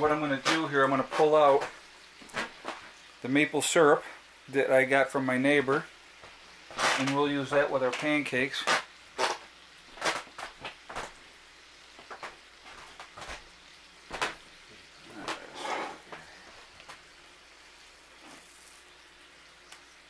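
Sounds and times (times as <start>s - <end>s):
spatula scraping pan: 15.1s - 16.2s.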